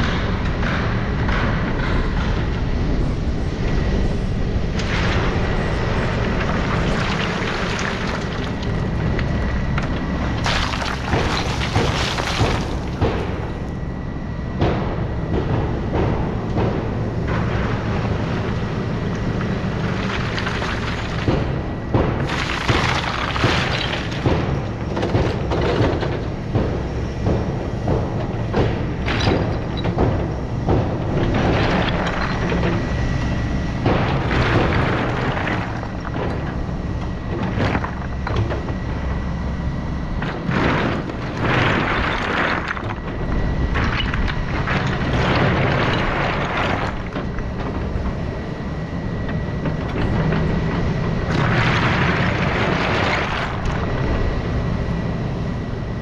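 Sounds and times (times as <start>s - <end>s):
excavator engine running: 0.0s - 56.0s
bucket clattering and thudding: 6.3s - 13.7s.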